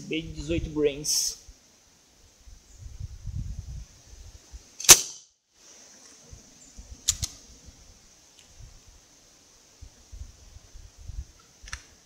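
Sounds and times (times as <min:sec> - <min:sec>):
air rifle shot: 0:04.8 - 0:05.2.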